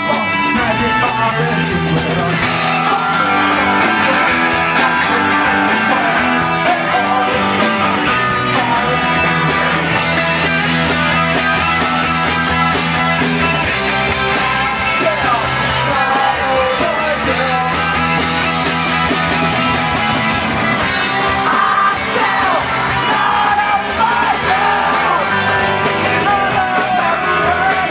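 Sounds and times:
person singing: 0.0 - 10.0, 14.8 - 18.2, 21.3 - 27.9
live rock band playing: 0.0 - 27.9.

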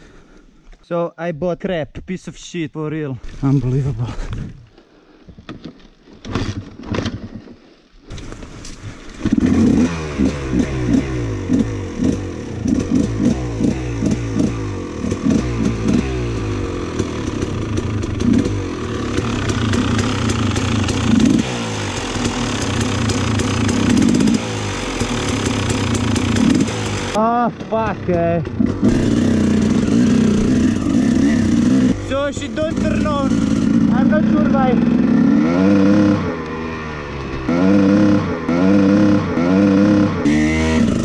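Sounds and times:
dirt bike engine revving: 9.2 - 41.0.

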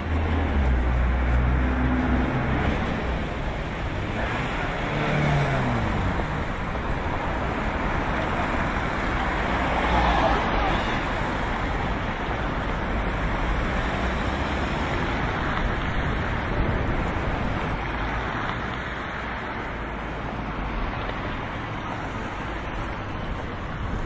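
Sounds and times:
traffic noise: 0.0 - 24.0
wind noise on microphone: 10.4 - 19.3, 20.4 - 24.0.

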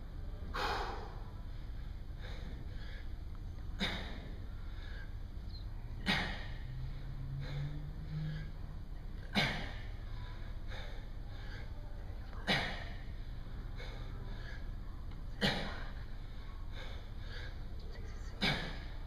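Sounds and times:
faint breathing: 0.5 - 19.0
man exhaling sharply: 0.6 - 1.2.

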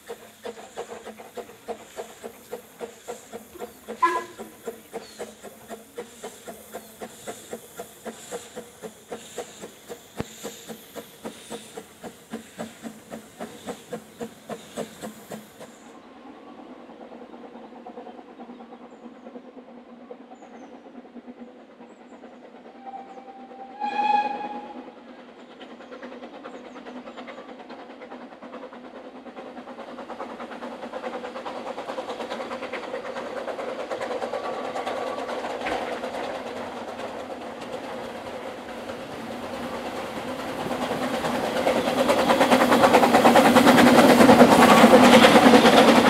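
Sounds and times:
steam train exhaust beats: 0.0 - 46.0
steam whistle: 4.0 - 4.4, 22.8 - 25.0.

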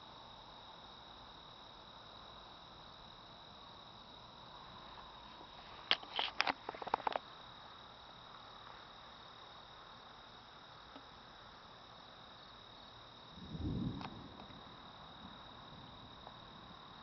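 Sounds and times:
cricket trill: 0.0 - 17.0
camera handling clicks and knocks: 5.9 - 7.2.

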